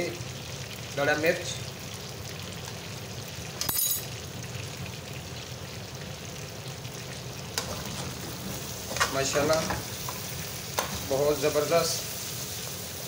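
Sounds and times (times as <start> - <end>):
chicken sizzling in a frying pan: 0.0 - 13.0
metallic clink: 3.6 - 4.1.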